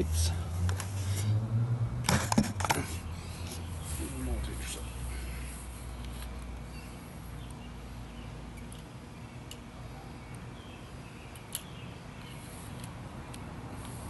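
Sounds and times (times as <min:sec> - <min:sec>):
faint outdoor rumble: 0:00.0 - 0:14.0
bicycle helmet handling clicks: 0:11.3 - 0:14.0.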